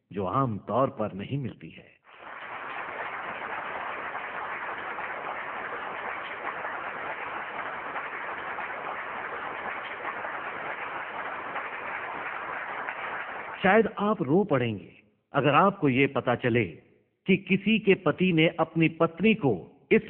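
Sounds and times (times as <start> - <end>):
crowd applause: 2.1 - 13.7.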